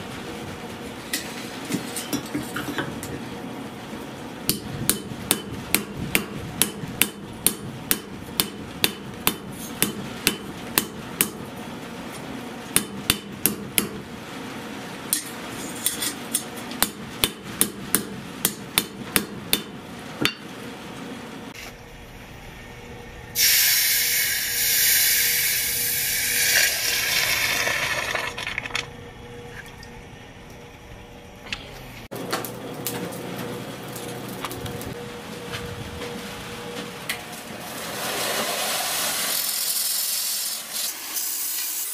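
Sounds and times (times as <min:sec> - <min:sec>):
hammer striking iron on anvil: 0:04.5 - 0:11.5, 0:12.7 - 0:14.0, 0:16.0 - 0:20.5
hot iron quenching hiss: 0:23.4 - 0:28.3, 0:37.8 - 0:41.9.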